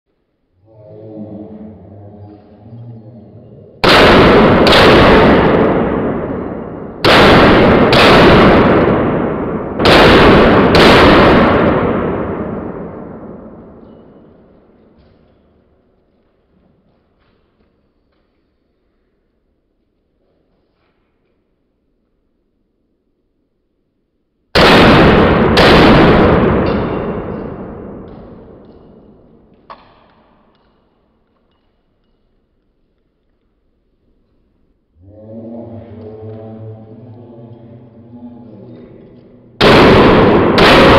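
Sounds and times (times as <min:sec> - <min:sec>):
handgun shots echoing: 0:03.8 - 0:14.4, 0:24.6 - 0:32.2, 0:39.6 - 0:40.9.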